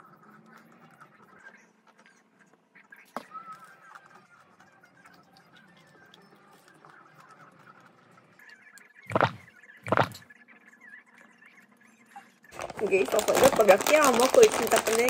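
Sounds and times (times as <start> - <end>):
gulps through a plastic straw: 9.1 - 10.2.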